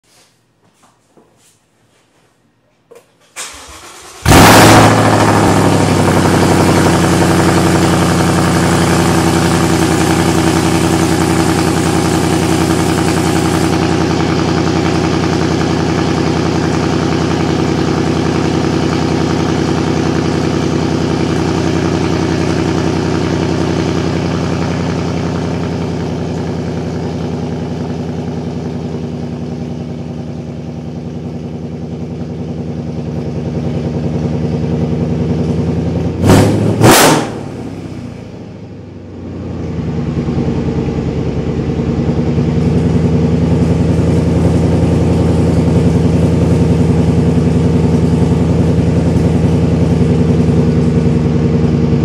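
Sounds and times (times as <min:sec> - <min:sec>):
car engine fast cold idle: 0:03.4 - 0:28.1.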